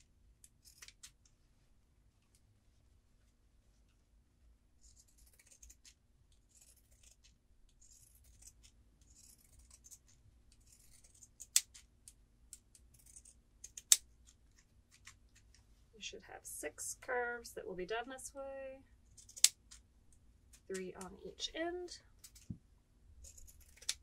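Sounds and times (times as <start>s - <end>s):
shears snipping fabric: 23.2s - 24.0s.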